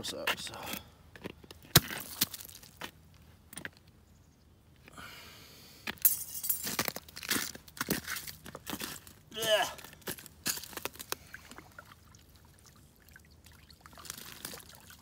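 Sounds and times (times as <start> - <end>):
ice clinking and crunching: 6.2 - 9.2, 9.8 - 12.7, 13.5 - 15.0.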